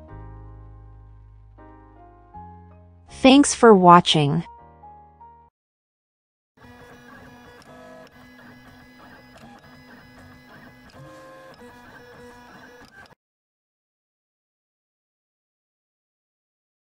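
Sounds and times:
printer carriage motor whirring: 6.6 - 13.2.

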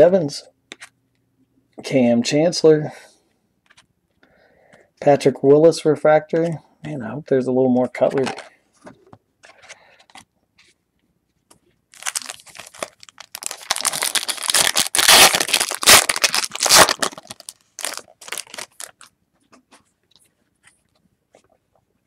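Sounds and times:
cards rustling and clicking: 3.6 - 3.9, 9.4 - 10.8
foil wrapper tearing and crinkling: 11.9 - 19.1.

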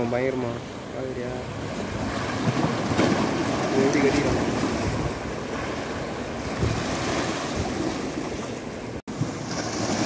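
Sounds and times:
sea waves against rocks: 0.0 - 10.0
wind buffeting microphone: 1.4 - 9.4.

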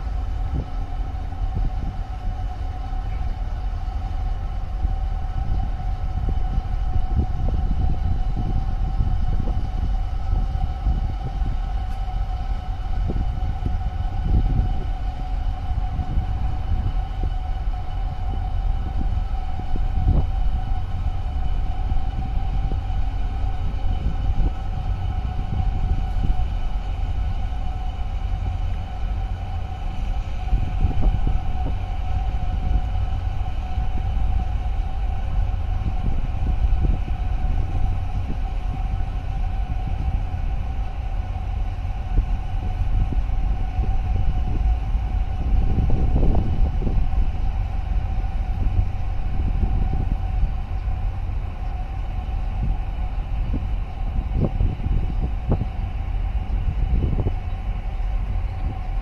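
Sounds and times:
ship engines rumbling: 0.0 - 59.0.

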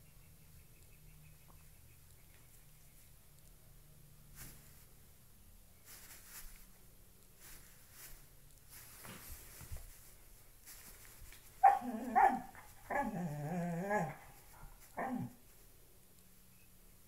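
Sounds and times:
dog grumbling: 12.9 - 14.2.

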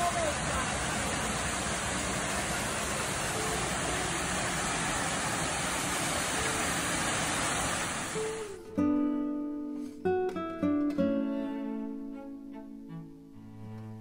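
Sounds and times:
waterfall rushing: 0.0 - 8.6.

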